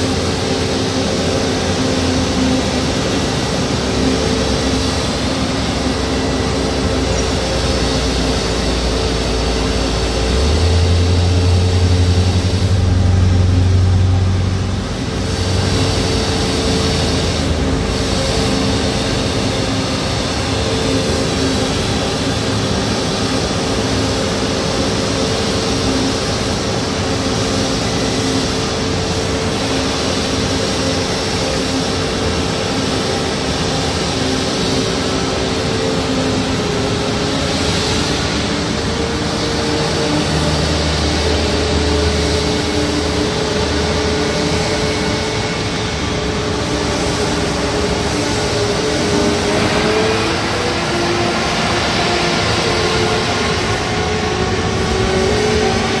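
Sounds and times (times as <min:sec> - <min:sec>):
jet engines idling: 0:00.0 - 0:56.0
vehicle engine rumble: 0:00.0 - 0:56.0.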